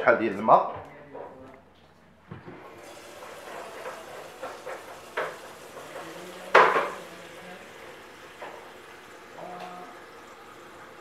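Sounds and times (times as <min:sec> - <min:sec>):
water running into container: 0:02.6 - 0:11.0.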